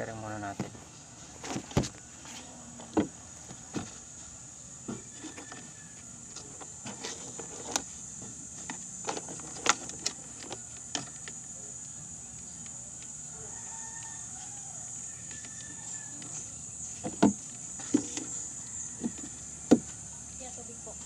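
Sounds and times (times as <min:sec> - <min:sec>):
high-pitched insect drone: 0:03.8 - 0:21.0.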